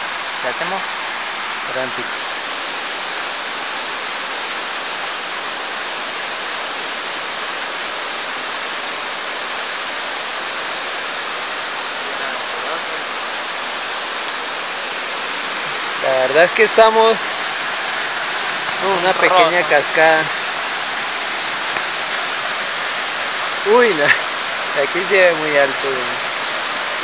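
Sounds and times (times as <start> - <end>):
waterfall and stream rushing: 0.0 - 27.0.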